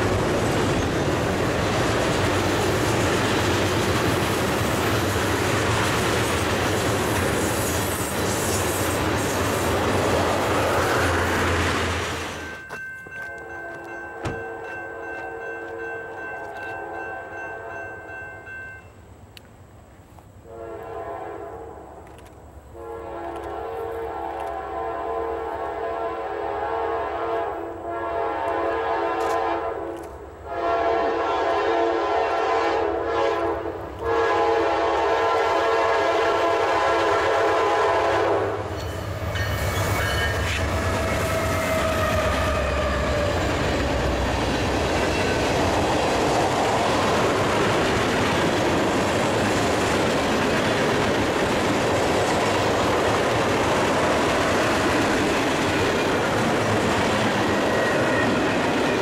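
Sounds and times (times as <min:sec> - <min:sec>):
train air horn blasts: 0:20.4 - 0:22.0, 0:22.7 - 0:43.4
wheels on rails: 0:38.7 - 0:59.0.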